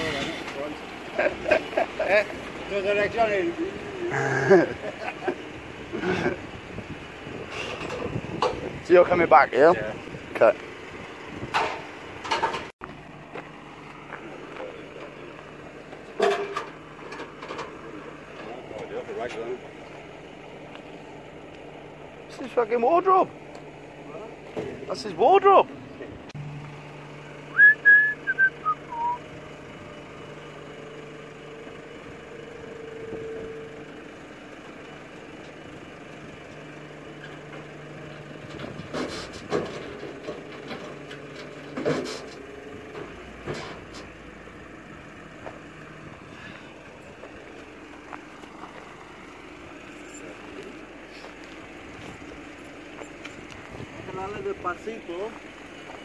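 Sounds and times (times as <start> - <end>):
tow truck engine and winch: 0.0 - 56.0
metal clanks: 11.5 - 12.7, 16.1 - 17.8
falling whistle: 27.5 - 29.2.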